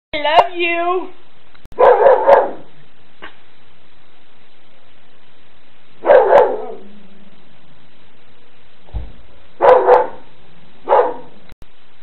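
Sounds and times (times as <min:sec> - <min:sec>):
dog barking: 0:01.8 - 0:02.7, 0:06.0 - 0:06.9, 0:09.6 - 0:11.4
brief low thump: 0:08.8 - 0:09.2.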